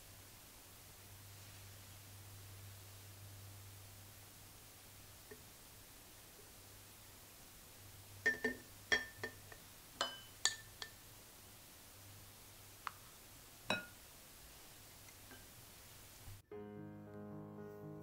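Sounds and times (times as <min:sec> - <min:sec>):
glass clinking: 0:08.2 - 0:11.0, 0:13.7 - 0:14.0.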